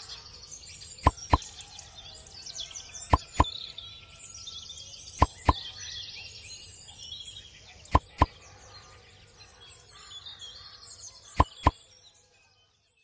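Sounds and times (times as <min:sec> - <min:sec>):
birds chirping: 0:00.0 - 0:01.6, 0:02.8 - 0:03.8, 0:04.9 - 0:12.0
short sharp pops: 0:01.0 - 0:01.4, 0:07.9 - 0:08.3, 0:11.4 - 0:11.7.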